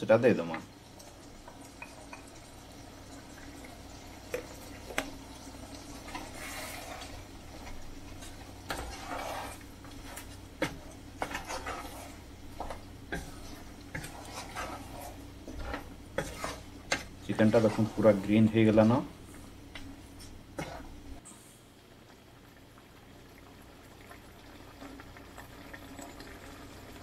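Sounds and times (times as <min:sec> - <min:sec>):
spatula scraping pan: 0:04.3 - 0:19.0, 0:19.8 - 0:21.1.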